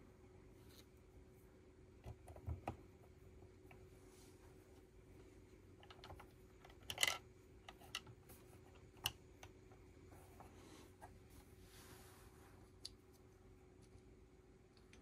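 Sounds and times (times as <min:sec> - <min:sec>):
plastic bricks clicking: 0:05.8 - 0:08.1.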